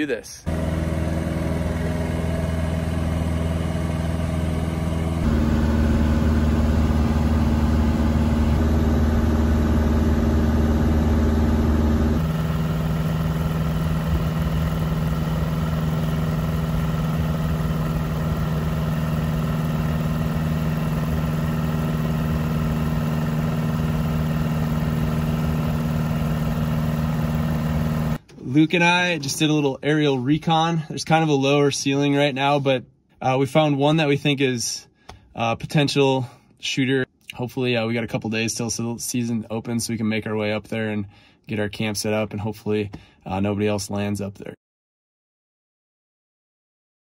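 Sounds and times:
plane engine and propeller droning: 0.5s - 28.2s.

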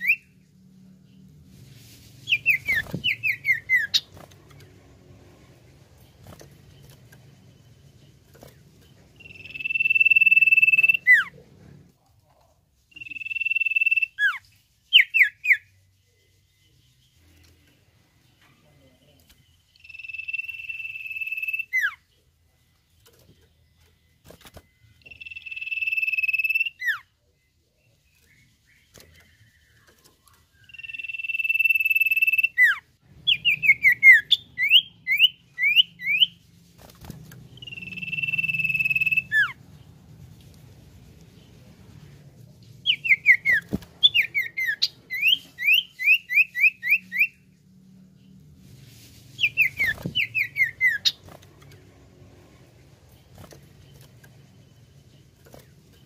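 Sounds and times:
bird whistling song: 0.0s - 0.4s, 2.2s - 4.2s, 9.2s - 11.4s, 12.9s - 15.8s, 19.7s - 22.0s, 24.6s - 27.1s, 28.0s - 36.4s, 37.5s - 39.6s, 42.8s - 47.4s, 49.3s - 51.3s
bird rapid rising notes: 37.5s - 39.6s.

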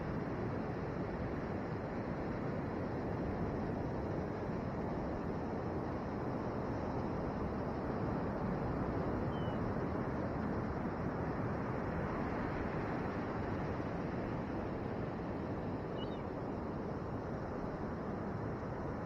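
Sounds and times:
faint high bird calls: 9.3s - 9.6s, 15.9s - 16.3s.

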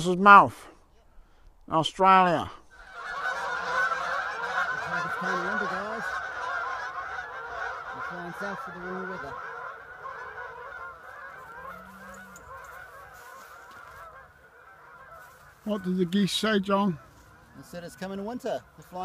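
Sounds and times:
geese honking: 2.2s - 19.0s.

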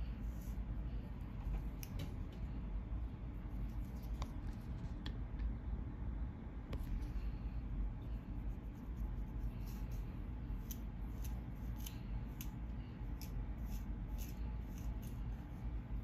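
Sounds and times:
comb scratching through hair: 8.2s - 16.0s.

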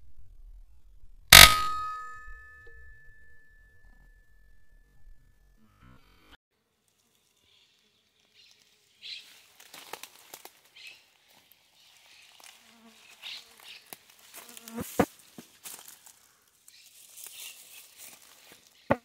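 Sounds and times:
sharp knock: 1.3s - 2.5s.

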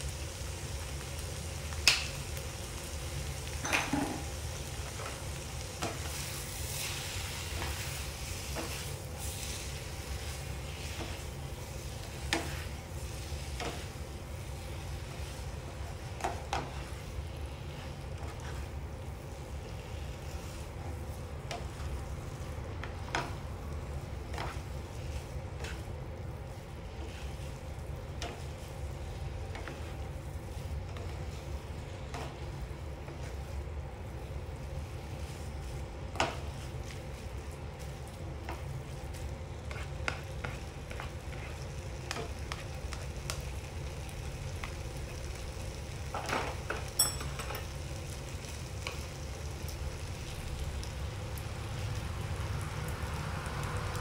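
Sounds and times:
meat frying in a pan: 0.0s - 54.0s
spatula scraping a pan: 5.8s - 15.4s, 16.0s - 23.4s, 24.3s - 33.6s, 39.6s - 42.7s.

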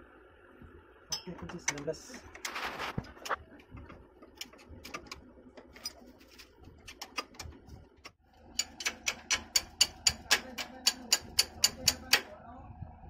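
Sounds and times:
ratcheting wrench clicking: 8.5s - 12.3s.

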